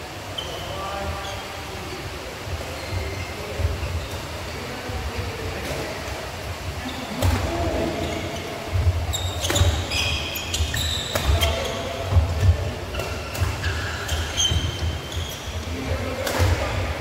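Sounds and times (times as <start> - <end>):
shoe squeaks: 0.4 - 2.1, 2.7 - 4.8, 8.0 - 15.8.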